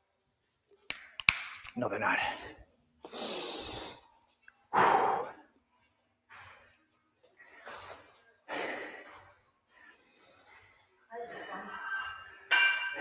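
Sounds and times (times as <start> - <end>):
person breathing heavily: 3.0 - 4.1, 4.7 - 5.5.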